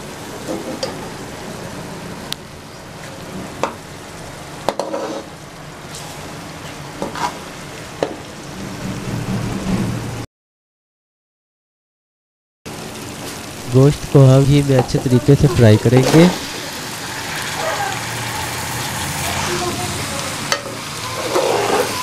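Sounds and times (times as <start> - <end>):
masala sizzling in a pot: 0.0 - 9.1, 12.7 - 22.0
steel spoon scraping a pot: 4.8 - 5.3, 21.1 - 22.0.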